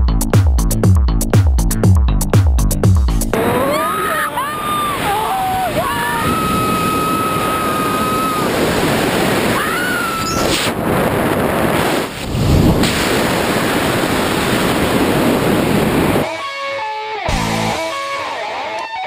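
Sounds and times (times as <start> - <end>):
wind rushing over microphone: 3.3 - 16.3
high whistling tone: 9.8 - 10.5
guitar music: 16.2 - 19.0.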